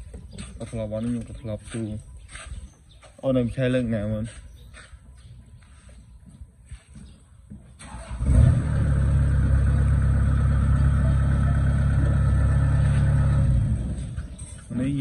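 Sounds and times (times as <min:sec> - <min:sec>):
diesel engine starting and running: 0:07.8 - 0:14.7.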